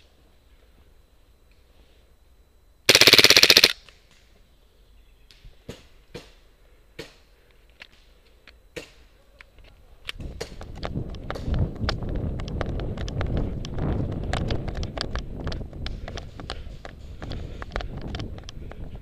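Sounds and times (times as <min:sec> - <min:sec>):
airsoft gun full-auto burst: 0:02.9 - 0:03.8.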